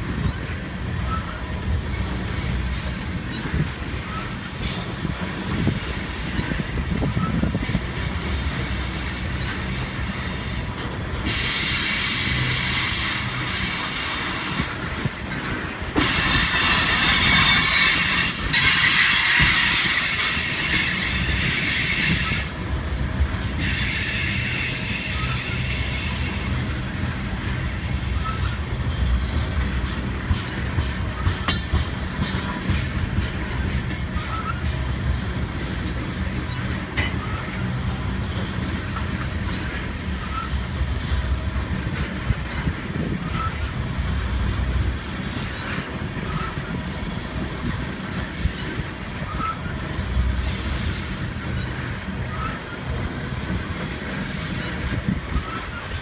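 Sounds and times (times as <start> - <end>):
wheels clicking over rail joints: 0.0 - 23.8, 25.2 - 56.0
steel wheels rumbling on rail: 0.0 - 56.0
high-pitched wheel squeal: 16.0 - 22.5, 48.4 - 49.8.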